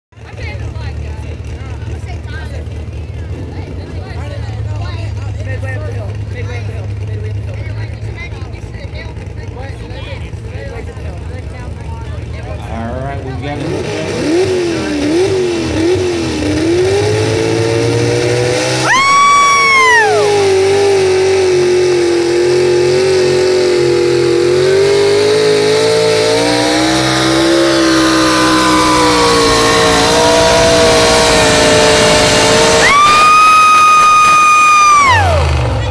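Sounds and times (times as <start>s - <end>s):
truck engine revving under load: 0.3s - 35.9s.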